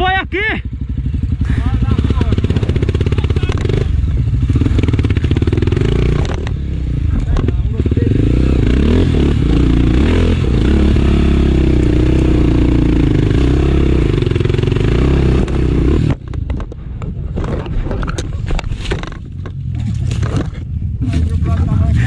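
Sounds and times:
dirt bike engine revving: 0.0 - 16.3
knocks and scraping: 4.6 - 7.7, 15.2 - 21.6.

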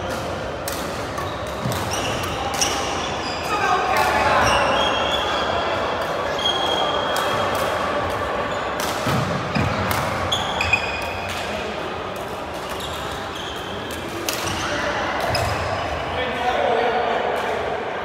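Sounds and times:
echoing chatter of voices: 0.0 - 18.0
badminton rackets hitting shuttlecock: 0.1 - 4.6, 6.0 - 11.5.

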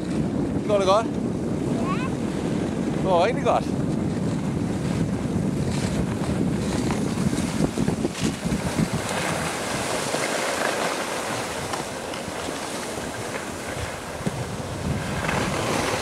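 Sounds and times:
wind buffeting microphone: 0.0 - 16.0
skis scraping on snow: 6.8 - 14.4.

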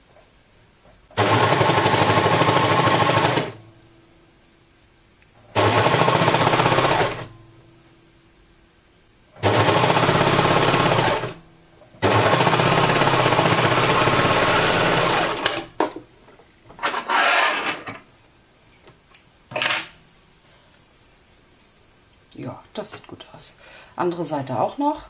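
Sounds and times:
overlock machine stitching: 1.2 - 3.6, 5.5 - 7.3, 9.4 - 11.4, 12.0 - 15.8.

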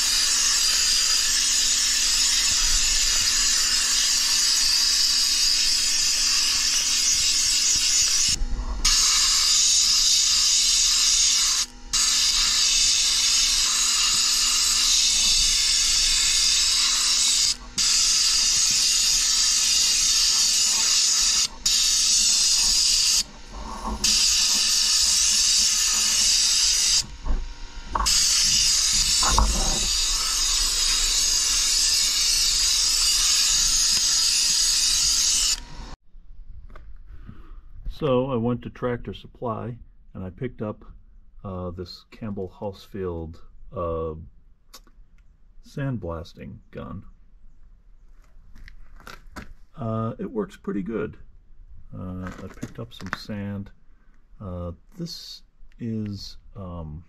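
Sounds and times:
sandblasting gun hissing: 0.0 - 36.0.

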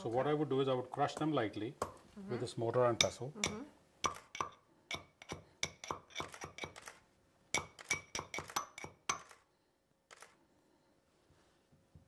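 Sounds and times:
metal pestle clinking in mortar: 3.0 - 6.8, 7.5 - 9.2.

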